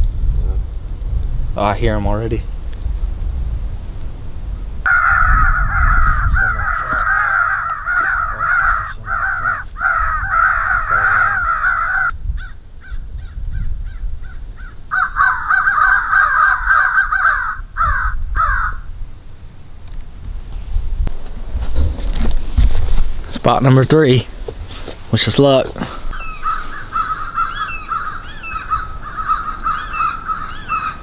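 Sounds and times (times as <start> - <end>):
crows cawing: 4.9 - 18.9, 25.8 - 31.0.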